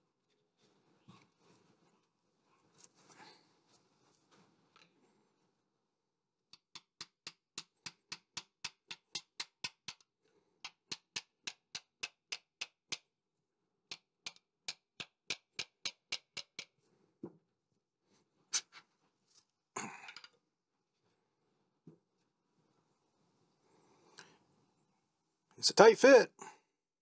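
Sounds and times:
rapid hammer taps: 6.5s - 13.1s, 13.9s - 16.7s.

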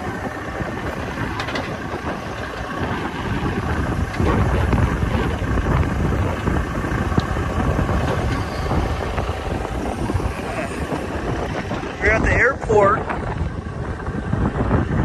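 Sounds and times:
diesel engines rumbling: 0.0s - 15.0s
wind buffeting microphone: 0.0s - 15.0s.

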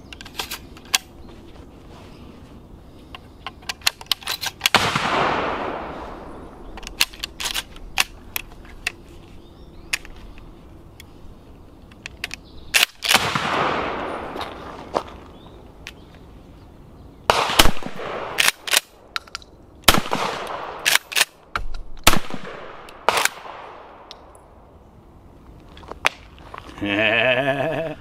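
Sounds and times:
shotgun shots with echo: 4.7s - 5.9s, 13.1s - 14.3s, 17.3s - 18.4s
shotgun action clicks: 20.2s - 22.2s.

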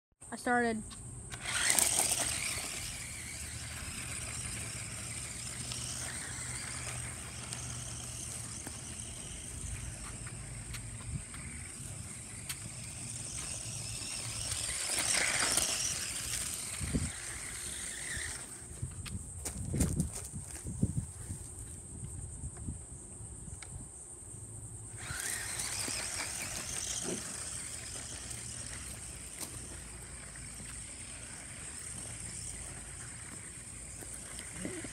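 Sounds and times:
high-pitched insect drone: 0.4s - 19.6s, 24.9s - 34.9s
toy truck electric motor whine: 1.2s - 19.0s, 24.9s - 34.9s.

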